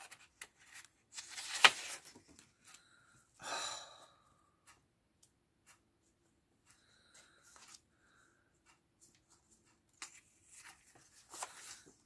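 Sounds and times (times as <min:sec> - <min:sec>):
paper rustling: 0:00.0 - 0:02.5, 0:09.2 - 0:12.0.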